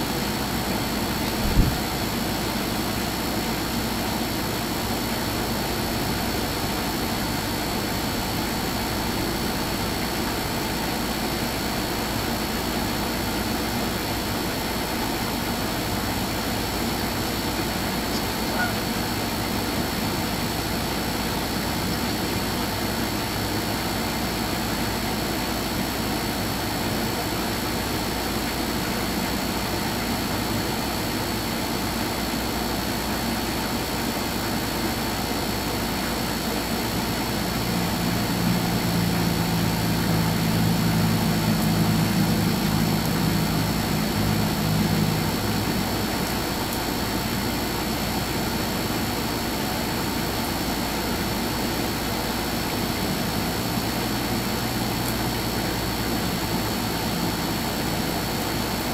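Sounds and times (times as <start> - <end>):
engine-like rumble and hiss: 0.0 - 58.9
low droning engine hum: 35.1 - 49.5.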